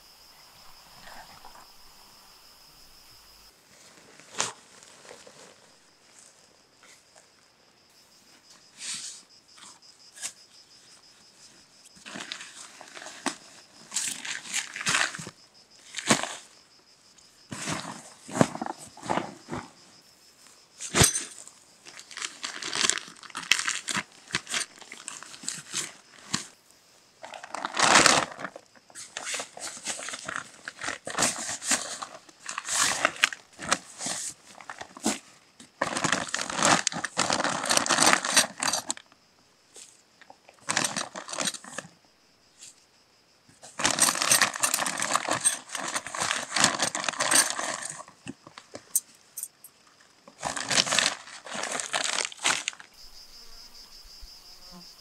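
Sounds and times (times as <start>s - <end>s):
tent fabric rustling: 2.8s - 6.6s, 43.7s - 48.1s, 50.3s - 53.7s.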